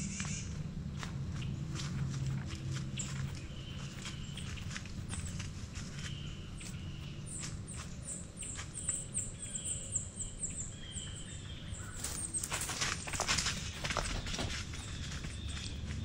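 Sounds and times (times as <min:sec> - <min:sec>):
small bird calling high notes: 0:00.0 - 0:00.6
outdoor rumble: 0:00.0 - 0:16.0
rustling footsteps: 0:00.0 - 0:16.0.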